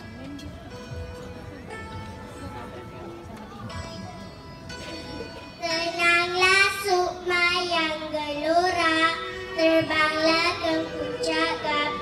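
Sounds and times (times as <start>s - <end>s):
backing music: 0.0s - 12.0s
girl singing into microphone: 5.6s - 12.0s.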